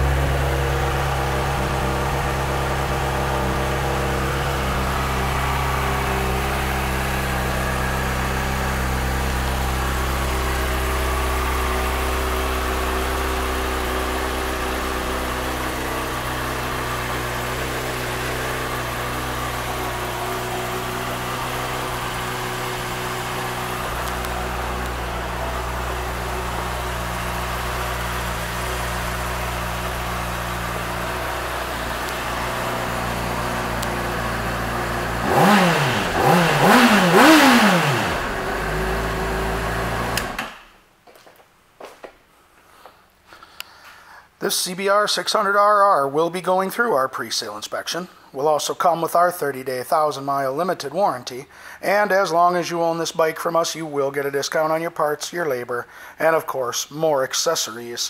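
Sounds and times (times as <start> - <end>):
motorcycle engine idling: 0.0 - 40.4.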